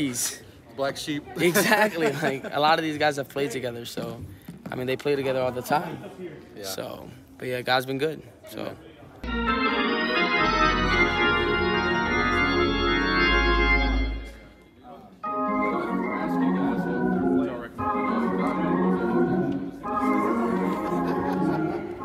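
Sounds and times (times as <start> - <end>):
organ playing held chords: 9.2 - 14.6, 15.2 - 22.0.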